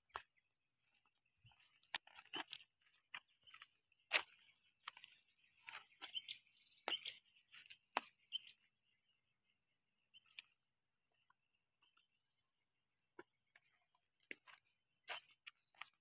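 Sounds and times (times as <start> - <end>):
footsteps on gravel: 0.0 - 8.5, 13.6 - 16.0.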